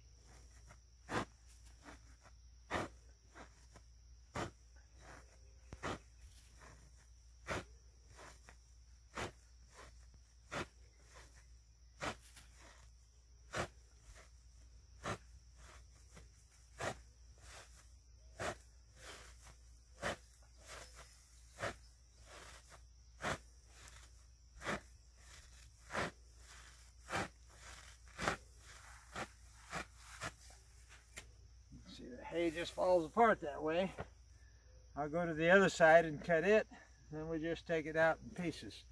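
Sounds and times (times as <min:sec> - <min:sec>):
hay knife crunching through bale: 0:00.3 - 0:11.4, 0:12.0 - 0:31.2.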